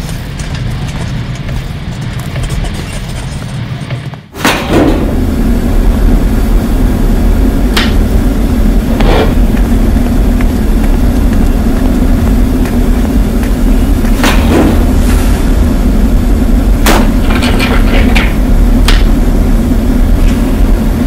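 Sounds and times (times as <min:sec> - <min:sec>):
industrial machine drone: 0:00.0 - 0:21.0.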